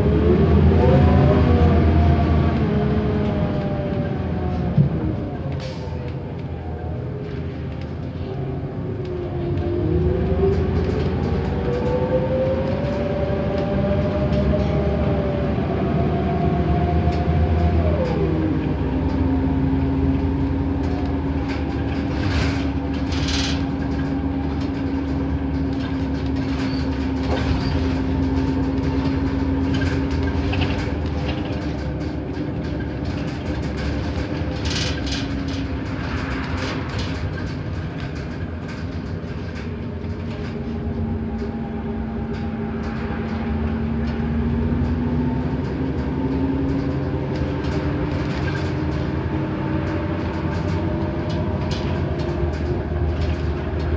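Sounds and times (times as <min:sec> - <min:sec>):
bus engine and transmission whine: 0:00.0 - 0:53.9
interior rattles: 0:19.9 - 0:53.9.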